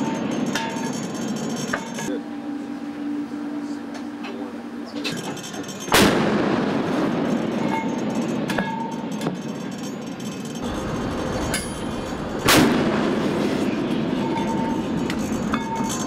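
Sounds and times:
steady background noise: 0:00.0 - 0:16.0
naval gun blast with rumble: 0:05.9 - 0:07.3, 0:10.7 - 0:13.9.

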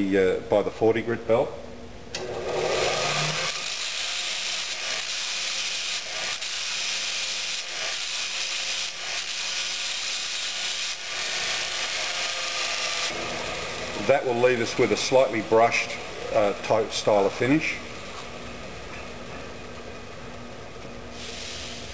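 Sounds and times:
belt grinder grinding metal: 0:02.2 - 0:15.3.

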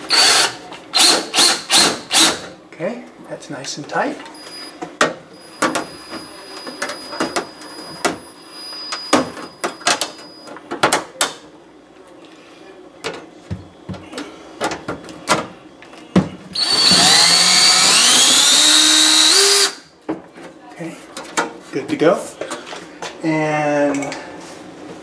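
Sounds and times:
power drill whining: 0:00.1 - 0:02.3, 0:16.6 - 0:19.8.

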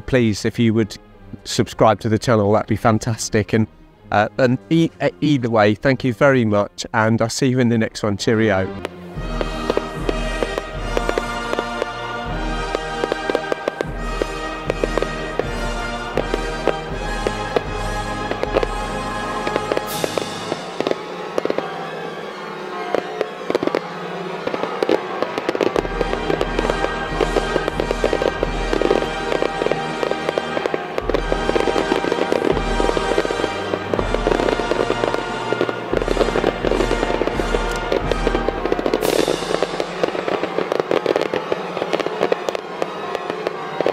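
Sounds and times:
low fireworks booms: 0:08.7 - 0:43.9
fireworks crackling and popping: 0:08.8 - 0:43.9.

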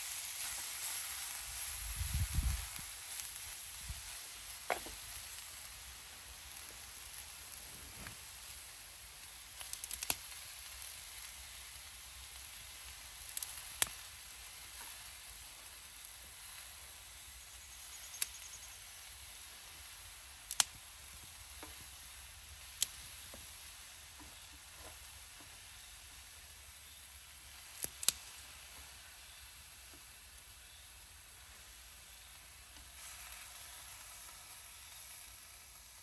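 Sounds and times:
food sizzling in a pan: 0:00.0 - 0:36.0
sharp pops: 0:04.6 - 0:05.2, 0:27.7 - 0:28.3.

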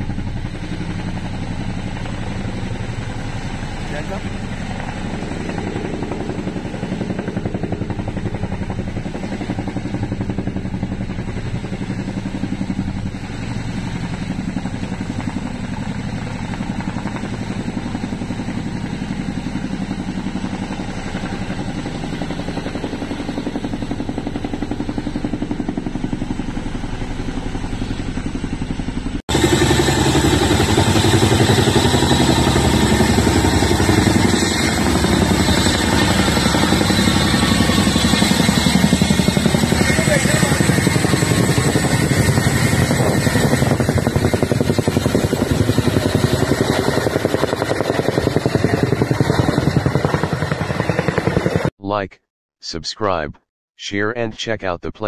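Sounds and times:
helicopter flying low past: 0:00.0 - 0:51.7
helicopter hovering: 0:00.0 - 0:52.0.

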